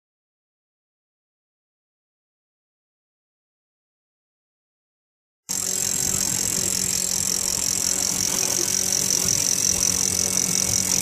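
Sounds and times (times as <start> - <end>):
electric reel whine: 5.5 - 11.0
motor low hum: 5.5 - 11.0.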